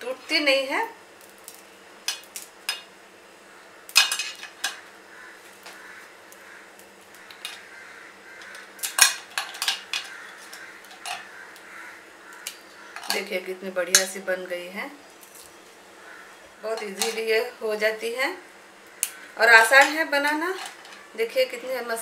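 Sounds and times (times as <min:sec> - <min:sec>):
brittle snapping: 0:01.2 - 0:02.9, 0:08.4 - 0:11.7, 0:12.3 - 0:13.2, 0:19.0 - 0:19.2
pieces clicking on metal plate: 0:03.9 - 0:04.8, 0:08.4 - 0:11.3.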